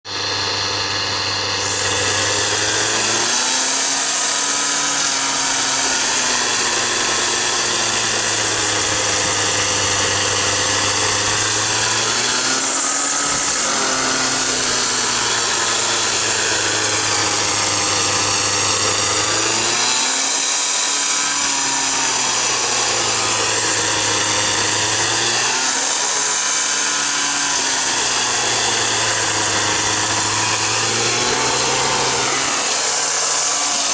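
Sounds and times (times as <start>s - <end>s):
blade cutting roots in soil: 0.1s - 33.9s
two-stroke engine running hard: 0.1s - 33.9s.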